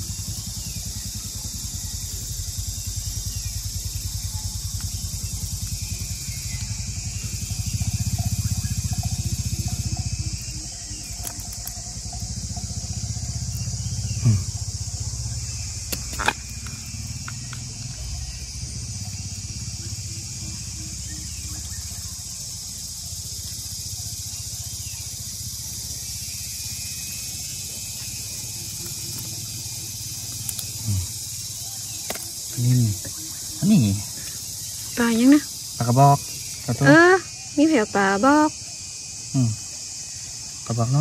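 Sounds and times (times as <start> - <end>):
low steady rumble: 0.0 - 31.7
insects chirping: 0.0 - 41.0.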